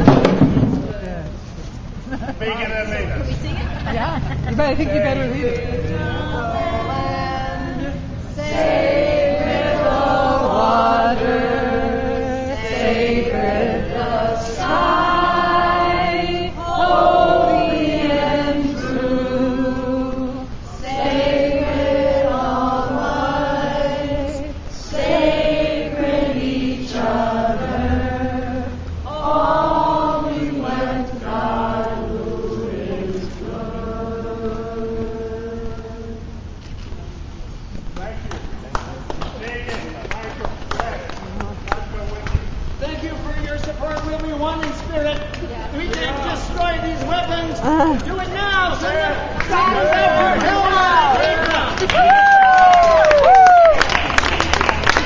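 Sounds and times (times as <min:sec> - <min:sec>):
group singing in unison: 0:04.9 - 0:36.6.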